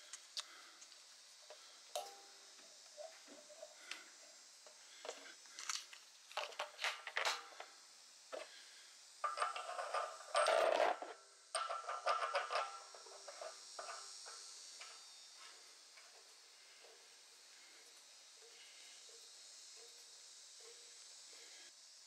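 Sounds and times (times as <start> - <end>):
metal fitting scraping and rattling: 5.0 - 7.7, 9.2 - 17.0.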